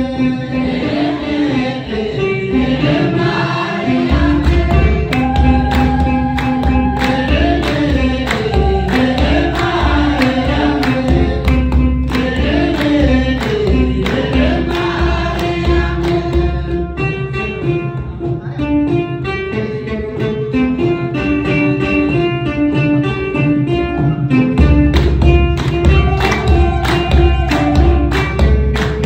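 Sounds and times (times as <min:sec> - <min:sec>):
choir singing in unison: 0:00.0 - 0:17.0
plucked string melody: 0:00.0 - 0:29.0
drum beat: 0:02.7 - 0:17.0, 0:24.4 - 0:29.0
hand clapping: 0:04.3 - 0:16.6, 0:24.8 - 0:29.0.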